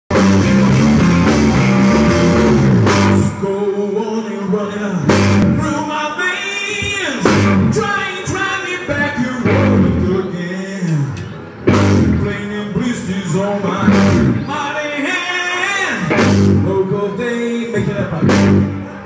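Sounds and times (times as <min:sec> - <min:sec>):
electric guitar: 0:00.1 - 0:03.9, 0:07.2 - 0:12.5, 0:15.9 - 0:19.0
live rock band playing: 0:00.1 - 0:03.9, 0:05.0 - 0:05.9, 0:06.7 - 0:10.4, 0:11.0 - 0:14.6, 0:15.5 - 0:19.0
male lead singer: 0:00.2 - 0:19.0.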